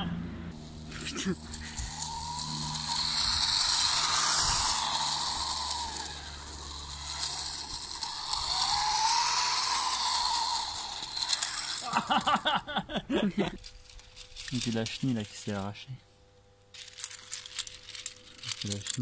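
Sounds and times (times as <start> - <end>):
electric motors whining: 0.0 - 15.7, 16.8 - 19.0
hiss from running gear: 0.6 - 12.0.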